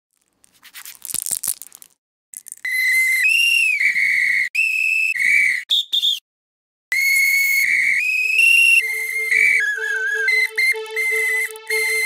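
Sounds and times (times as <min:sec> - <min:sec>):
shrill whistle blasts: 0:02.7 - 0:06.2, 0:06.9 - 0:12.0.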